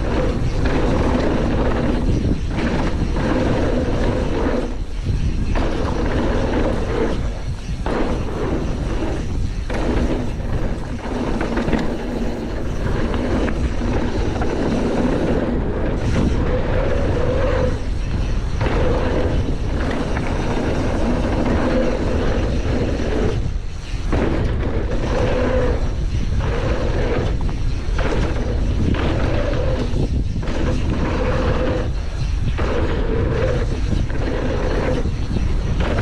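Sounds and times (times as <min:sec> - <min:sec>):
bike frame rattle: 0:00.0 - 0:36.0
bike tyres rumbling over dirt: 0:00.0 - 0:36.0
wind on microphone: 0:00.0 - 0:36.0.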